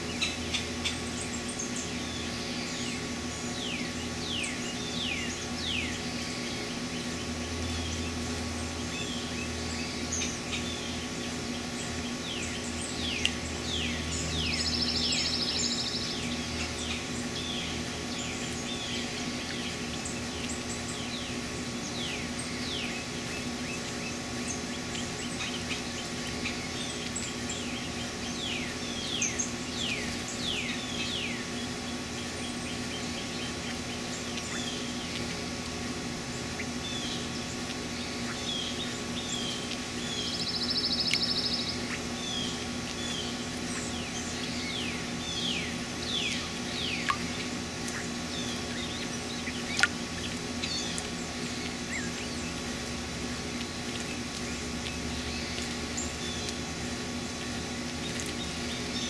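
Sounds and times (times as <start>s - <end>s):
songbirds chip notes: 0.0s - 59.0s
steady low hum: 0.0s - 59.0s.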